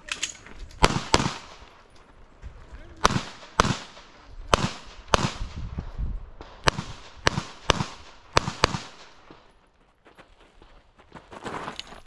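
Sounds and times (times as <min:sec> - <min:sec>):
gunshots with short echo: 0:00.8 - 0:01.7.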